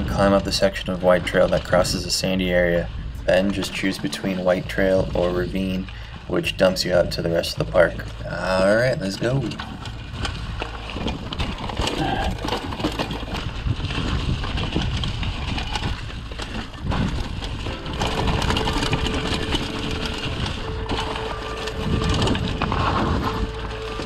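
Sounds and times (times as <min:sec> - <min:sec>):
bike frame and chain rattle: 0:00.0 - 0:24.0
bike tyres crunching over leaves: 0:00.0 - 0:24.0
wind rumble on microphone: 0:00.0 - 0:24.0
steady hum: 0:15.8 - 0:24.0.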